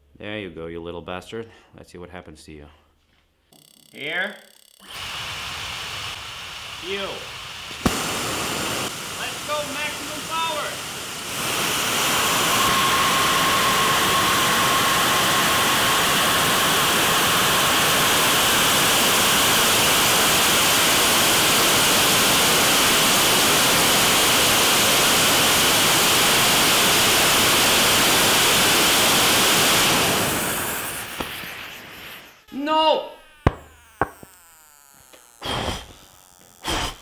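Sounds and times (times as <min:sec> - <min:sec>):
jet engine rushing hiss: 0:04.9 - 0:32.4.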